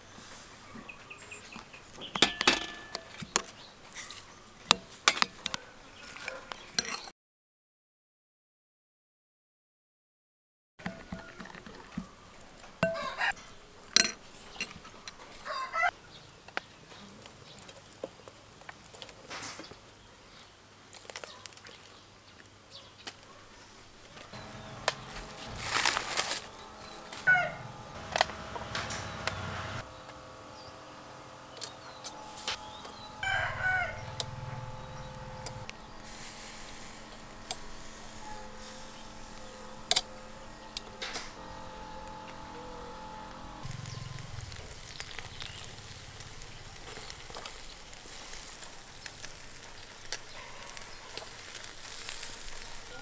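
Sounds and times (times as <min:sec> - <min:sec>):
chickens clucking: 0:12.8 - 0:13.5, 0:14.3 - 0:15.9, 0:24.3 - 0:29.6, 0:32.1 - 0:36.0
rooster crowing: 0:15.4 - 0:15.9, 0:26.4 - 0:29.4, 0:32.2 - 0:35.7, 0:52.1 - 0:53.0
steady low hum: 0:24.2 - 0:50.1.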